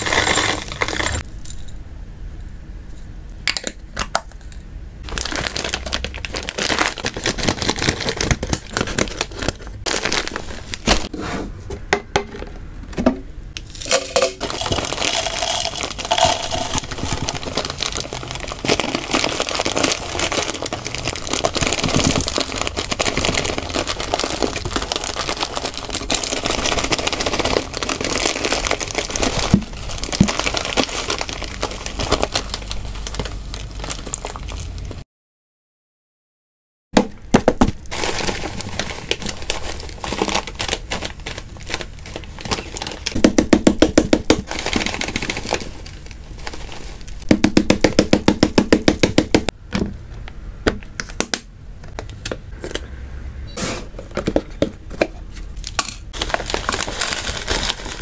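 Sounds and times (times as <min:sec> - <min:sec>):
dry food pouring into container: 0:00.0 - 0:01.2, 0:13.7 - 0:34.7
plastic bag crinkling: 0:00.0 - 0:01.3, 0:05.0 - 0:11.1, 0:13.6 - 0:35.0, 0:37.5 - 0:49.4, 0:55.5 - 0:58.0.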